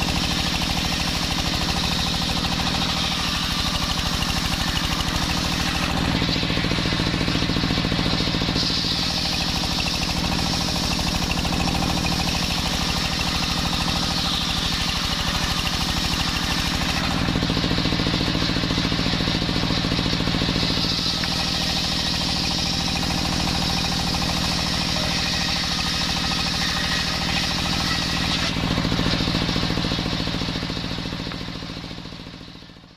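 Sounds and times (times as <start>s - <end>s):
saw blade cutting wood hiss: 0.0s - 18.8s, 20.0s - 30.0s
table saw drone: 0.0s - 31.4s.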